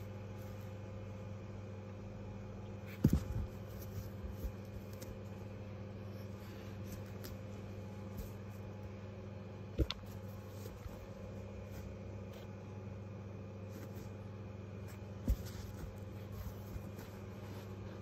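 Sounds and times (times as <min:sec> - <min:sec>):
steady low hum: 0:00.0 - 0:18.0
plush toys rustling: 0:02.8 - 0:08.9, 0:13.6 - 0:18.0.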